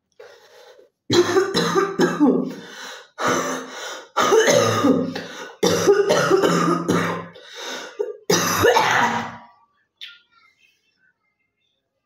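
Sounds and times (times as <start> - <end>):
woman coughing: 1.1 - 2.6, 3.2 - 9.4
woman clearing her throat: 4.2 - 7.4, 8.0 - 9.5.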